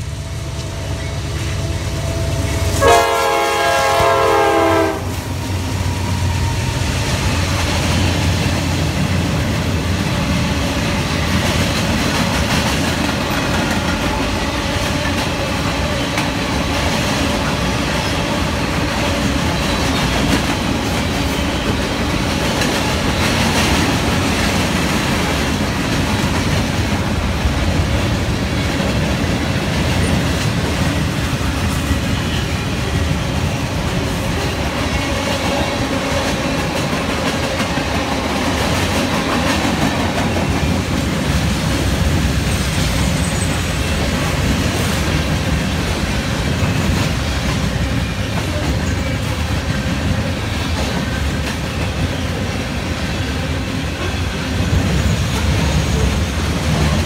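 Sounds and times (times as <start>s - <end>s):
freight train rumbling past: 0.0s - 57.0s
locomotive horn chord: 0.2s - 5.4s.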